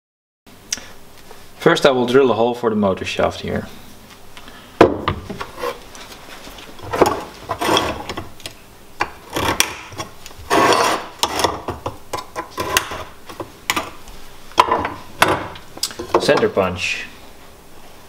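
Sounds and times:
scriber scraping steel plate: 0:06.9 - 0:08.3, 0:09.2 - 0:13.1.

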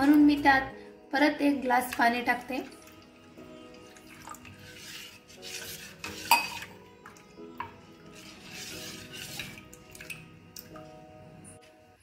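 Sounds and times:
soft background music: 0:00.0 - 0:12.0
spoon stirring liquid: 0:01.8 - 0:10.9
spoon clinking on steel bowl: 0:06.2 - 0:06.8.

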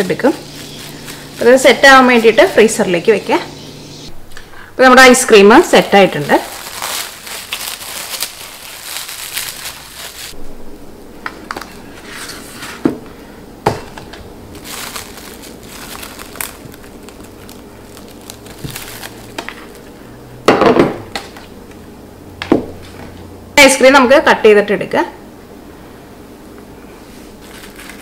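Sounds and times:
cling wrap crinkling: 0:00.0 - 0:03.4, 0:05.6 - 0:10.4, 0:13.8 - 0:20.0, 0:27.3 - 0:28.0.

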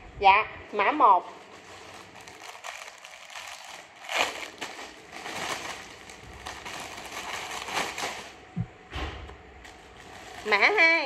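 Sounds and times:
plastic bag crinkling: 0:01.2 - 0:08.5, 0:09.6 - 0:11.0.

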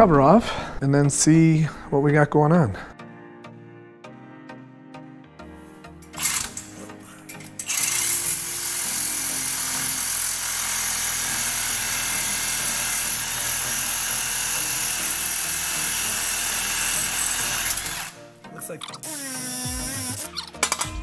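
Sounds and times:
reciprocating saw cutting metal: 0:06.1 - 0:18.2, 0:18.9 - 0:21.0.

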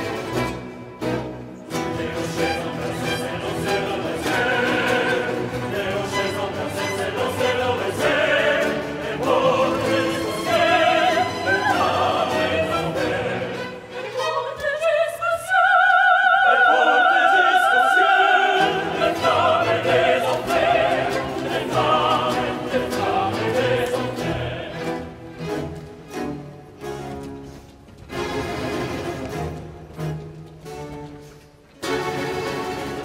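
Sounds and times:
orchestra and choir opera music: 0:00.0 - 0:33.0.

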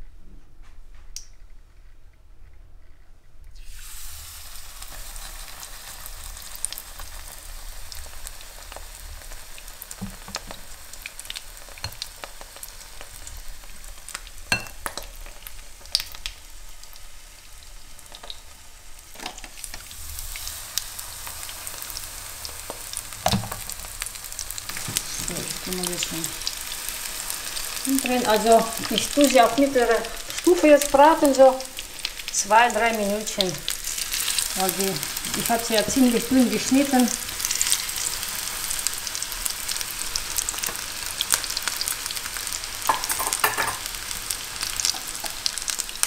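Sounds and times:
battered slices frying in oil: 0:03.6 - 0:46.0
oil popping and crackling: 0:04.6 - 0:18.5, 0:33.1 - 0:46.0.

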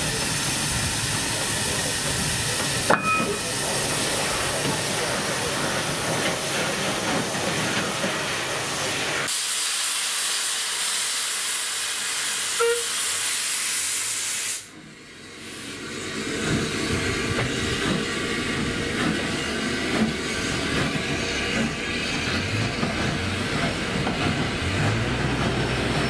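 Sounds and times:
train rumbling: 0:00.0 - 0:09.3, 0:14.7 - 0:26.0
locomotive steam hissing: 0:00.0 - 0:26.0.

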